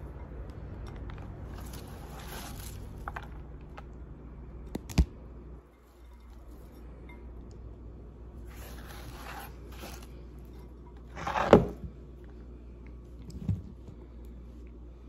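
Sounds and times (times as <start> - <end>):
cabbage scraped across cutting board: 8.5 - 10.1.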